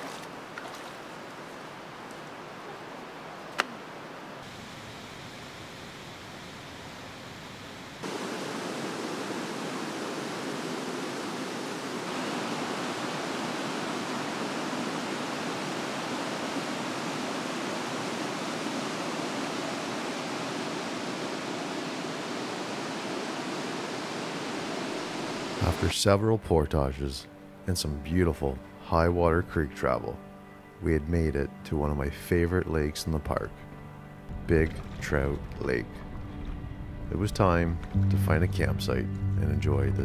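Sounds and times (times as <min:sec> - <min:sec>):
water rushing over rocks: 0:08.0 - 0:25.9.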